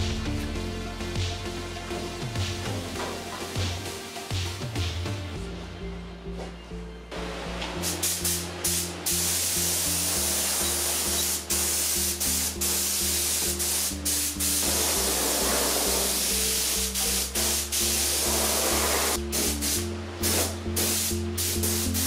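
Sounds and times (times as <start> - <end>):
background music: 0.0 - 22.0
paint spray gun hissing: 7.8 - 22.0.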